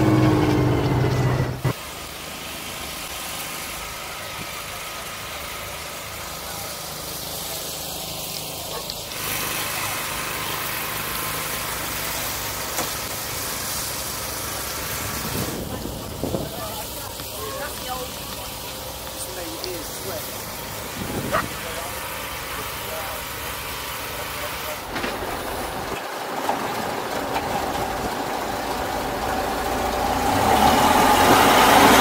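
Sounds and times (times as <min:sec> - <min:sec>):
distant vehicle engines: 0:00.0 - 0:32.0
faint voices: 0:15.3 - 0:25.5.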